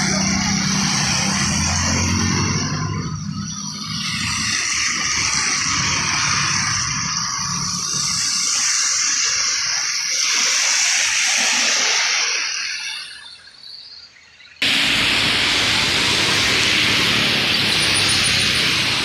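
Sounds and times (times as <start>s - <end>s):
tyres hissing on wet asphalt: 14.6s - 19.0s.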